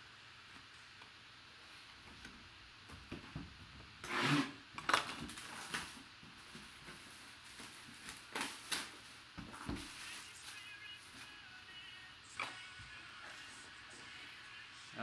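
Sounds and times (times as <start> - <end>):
plastic wrap rustling: 4.8 - 11.5.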